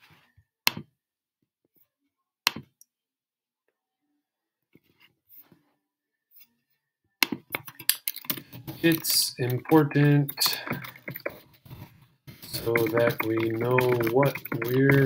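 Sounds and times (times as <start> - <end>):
keyboard typing: 7.5 - 11.8, 12.4 - 15.0.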